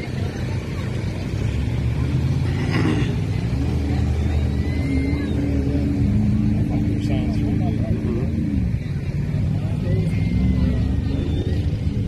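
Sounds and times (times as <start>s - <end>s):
truck engine running hard: 0.0s - 12.0s.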